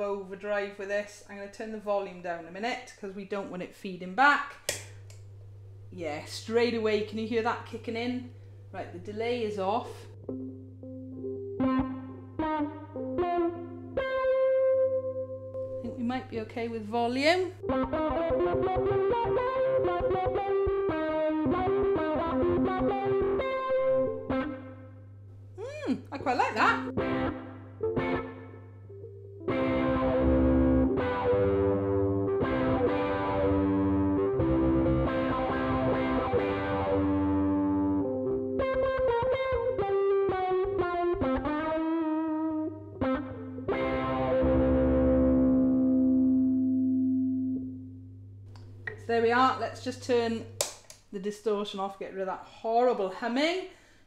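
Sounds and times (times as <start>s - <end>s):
distorted ukulele picked notes: 10.2s - 15.9s, 17.6s - 24.9s, 26.7s - 48.5s
low distortion hum: 43.0s - 50.6s.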